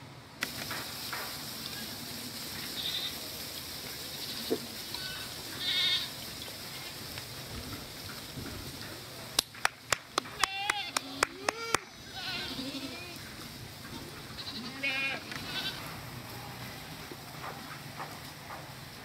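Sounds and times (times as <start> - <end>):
steady outdoor hiss: 0.0 - 19.0
goats bleating: 2.6 - 3.2, 4.1 - 7.0, 10.3 - 13.3, 14.2 - 16.7.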